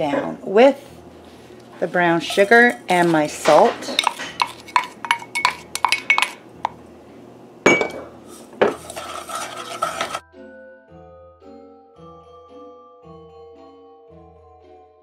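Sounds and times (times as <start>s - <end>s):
spoon stirring in pan: 1.7s - 6.8s, 8.3s - 10.2s
wooden spoon tapping glass and pan: 4.0s - 6.4s.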